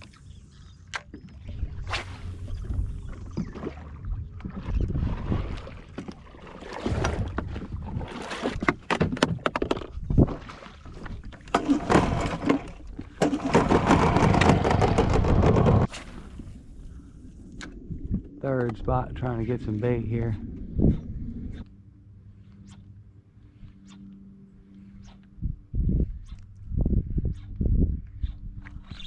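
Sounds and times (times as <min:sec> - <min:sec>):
water slapping a boat hull: 0:00.9 - 0:16.4
wind buffeting the microphone: 0:01.5 - 0:06.0, 0:06.8 - 0:08.7, 0:09.3 - 0:11.3, 0:13.6 - 0:21.7, 0:25.4 - 0:29.0.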